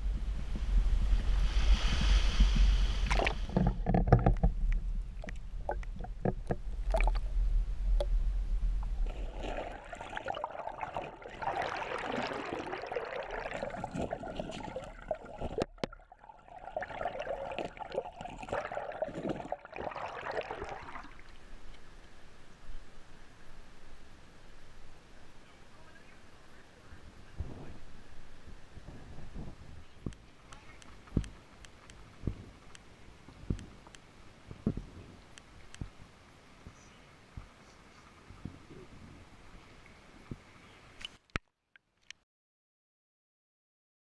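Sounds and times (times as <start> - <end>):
low rumbling wind: 0.0 - 15.8
muffled underwater river rushing: 0.0 - 23.7.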